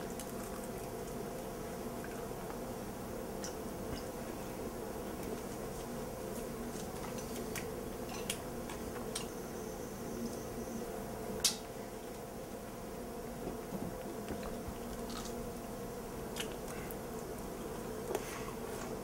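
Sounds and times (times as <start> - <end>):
steady hum: 0.0 - 19.0
person biting and chewing food: 15.0 - 15.4.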